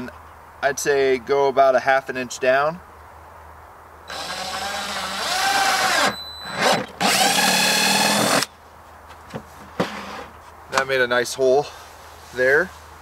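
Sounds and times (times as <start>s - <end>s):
drill boring through plastic: 4.1s - 8.5s.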